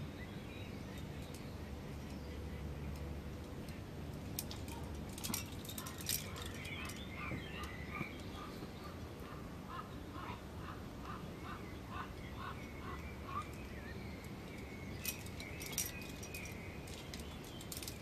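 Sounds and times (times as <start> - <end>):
metal climbing gear clinking: 2.9 - 8.0, 13.3 - 18.0.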